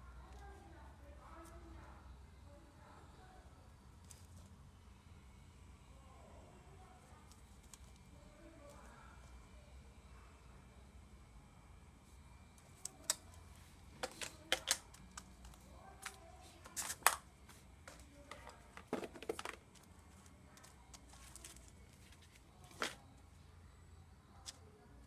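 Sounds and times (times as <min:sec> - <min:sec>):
plastic items clicking on tabletop: 0:14.0 - 0:17.2, 0:17.9 - 0:23.0.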